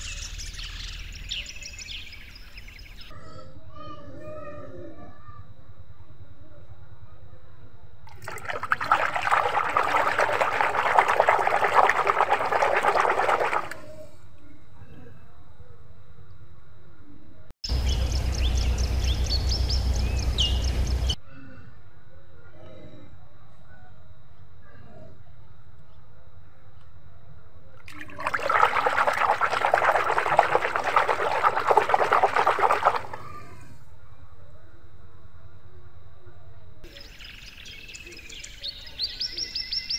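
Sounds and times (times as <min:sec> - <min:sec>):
hands splashing soapy water: 0:08.1 - 0:14.0, 0:27.8 - 0:33.5.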